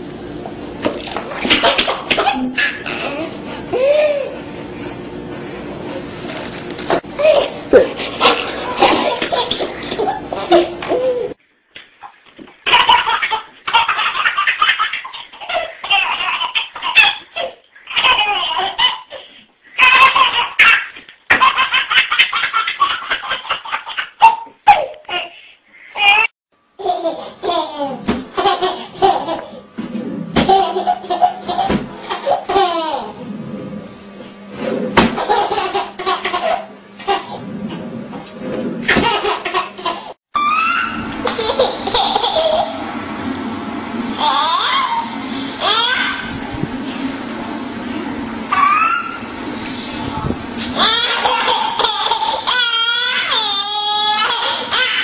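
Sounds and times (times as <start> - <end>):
baby giggling: 12.7 - 25.4, 35.2 - 37.4, 38.9 - 42.8, 50.8 - 55.0.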